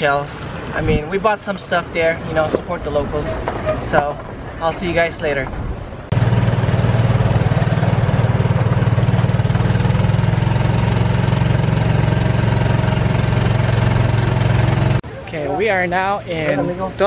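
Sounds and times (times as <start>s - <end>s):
golf cart engine droning: 6.1s - 15.0s.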